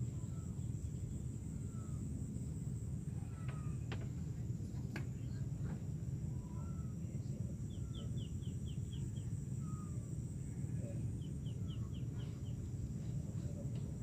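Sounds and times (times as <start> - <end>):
faint scattered bird notes: 0.0 - 14.0
high hiss of open air: 0.0 - 14.0.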